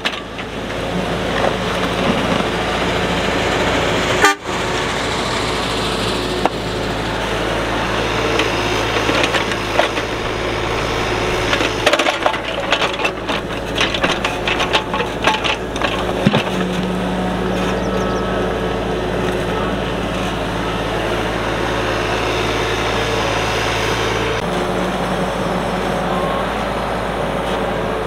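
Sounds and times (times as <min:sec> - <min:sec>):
excavator diesel engine running: 0:00.0 - 0:28.0
bucket cracking and snapping ground: 0:08.3 - 0:17.0.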